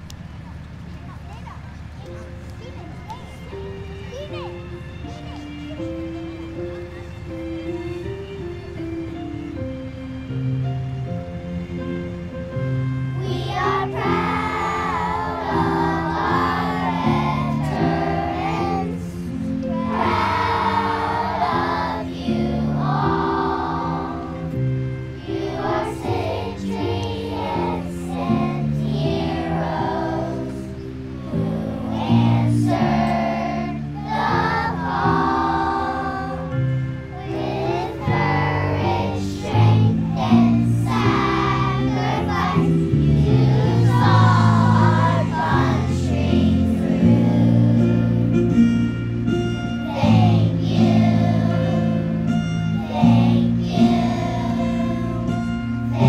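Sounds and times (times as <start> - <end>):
instrumental accompaniment: 1.8 - 56.0
children's choir singing: 13.0 - 56.0.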